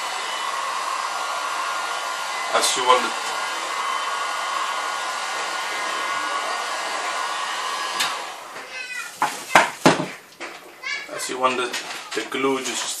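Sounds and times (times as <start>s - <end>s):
hot-air blower running: 0.0s - 9.3s.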